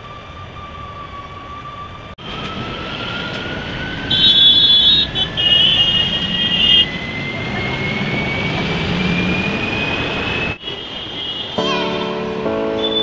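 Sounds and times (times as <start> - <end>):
road rumble: 0.0 - 11.1
bus engine whine: 0.0 - 13.0
high-pitched horn: 11.2 - 13.0.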